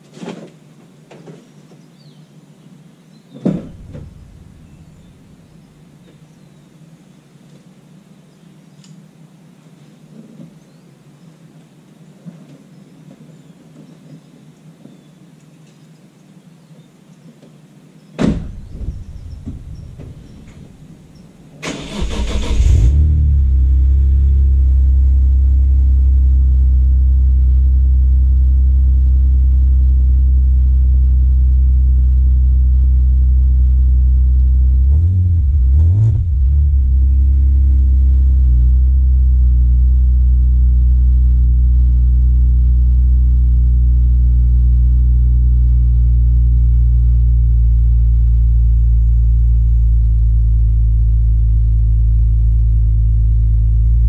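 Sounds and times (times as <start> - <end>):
sharp knock: 3.4 - 4.6, 18.2 - 20.7
car engine fast idle: 3.7 - 5.6, 18.4 - 24.7
engine starter cranking: 18.4 - 23.2.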